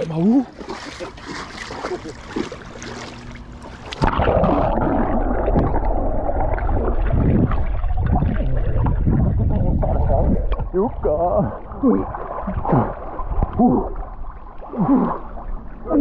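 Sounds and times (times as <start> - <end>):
open-air sound: 0.0 - 7.4
muffled underwater rumble and gurgle: 0.0 - 16.0.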